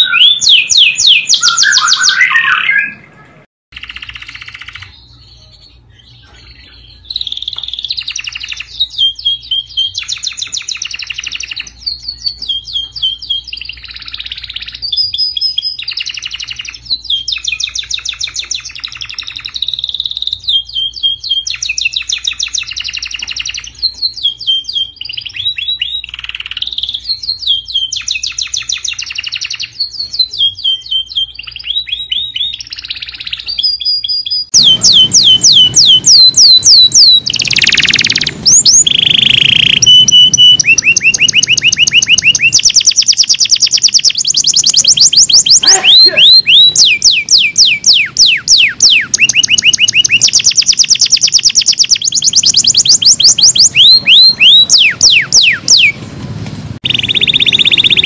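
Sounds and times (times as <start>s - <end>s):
canary singing: 0.0s - 56.0s, 56.8s - 58.0s.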